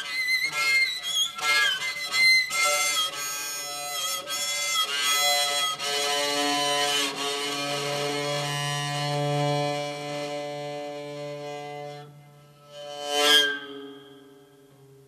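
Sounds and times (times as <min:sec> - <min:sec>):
bowed string squeaky tones: 0:00.0 - 0:15.0.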